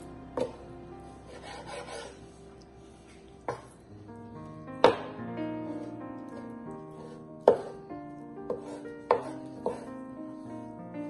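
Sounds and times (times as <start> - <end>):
background music: 0.0 - 11.0
knife striking cutting board: 4.8 - 5.8, 7.0 - 7.8, 8.5 - 9.9.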